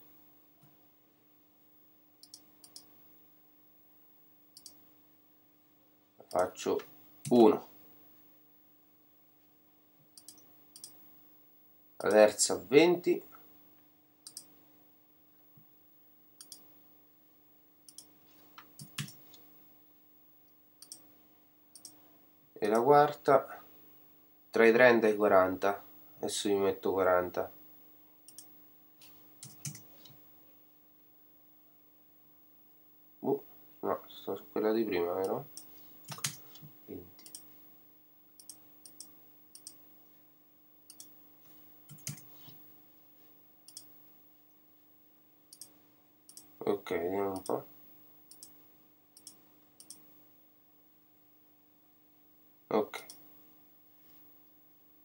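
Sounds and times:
faint steady hum: 0.0s - 55.0s
computer mouse clicks: 2.2s - 2.9s, 4.6s - 4.8s, 10.2s - 11.0s, 14.2s - 14.5s, 16.4s - 16.7s, 17.9s - 19.4s, 20.8s - 21.1s, 21.8s - 22.0s, 28.3s - 28.5s, 29.4s - 30.2s, 35.2s - 37.5s, 38.4s - 39.8s, 40.9s - 41.1s, 41.9s - 42.5s, 43.7s - 43.9s, 45.5s - 45.7s, 46.3s - 46.5s, 47.4s - 47.6s, 48.3s - 48.6s, 49.2s - 50.0s
mouse and keyboard clicks: 29.4s - 29.9s, 35.6s - 36.4s.

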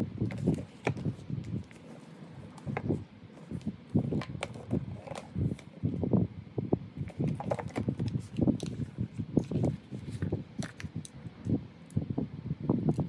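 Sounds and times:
paper rustling and scraping: 0.2s - 5.8s, 7.0s - 10.9s.

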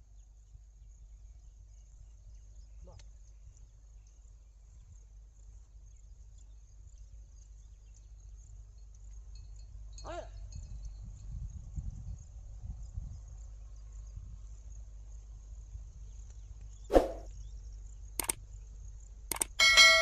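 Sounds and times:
faint insect chirping: 0.0s - 19.6s
wind rumbling on microphone: 10.4s - 14.7s.

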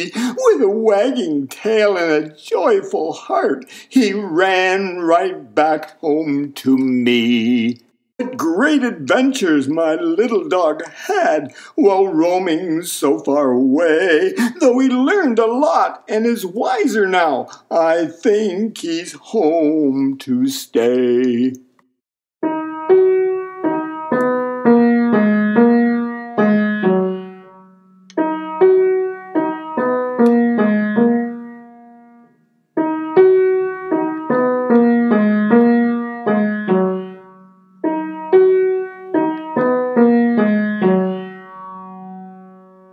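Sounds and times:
piano melody: 22.4s - 42.9s.

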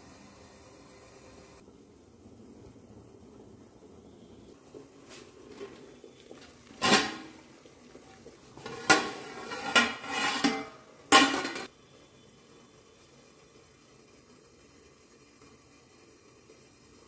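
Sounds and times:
metal lid clanking on pot: 6.8s - 7.4s, 8.6s - 11.7s.

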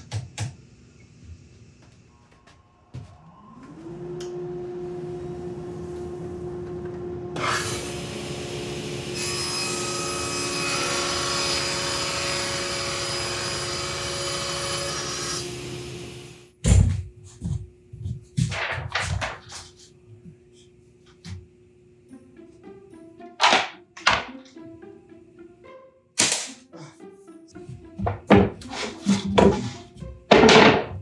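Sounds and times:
table saw cutting plywood: 3.6s - 16.5s
cut boards knocking: 28.0s - 31.0s.

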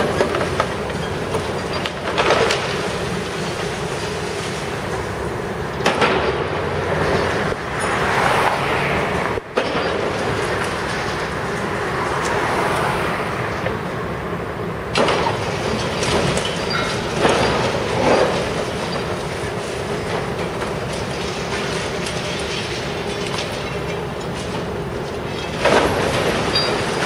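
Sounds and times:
excavator grinding concrete: 0.0s - 8.3s, 14.9s - 27.0s.

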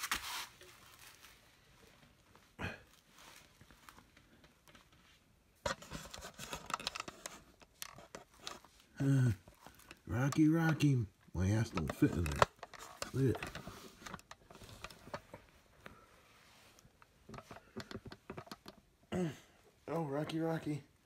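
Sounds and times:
rustling and clicking: 3.3s - 16.0s, 16.7s - 18.9s.

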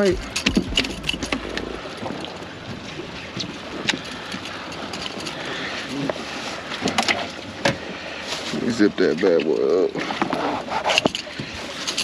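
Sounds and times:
wind on microphone: 0.0s - 6.3s.

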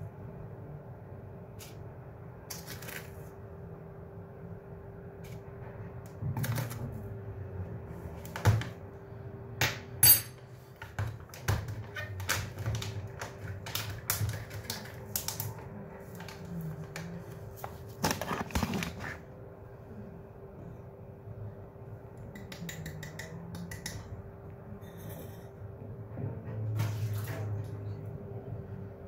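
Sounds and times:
faint steady hum: 0.0s - 29.0s
metal spoon clicks and taps: 22.3s - 24.0s.

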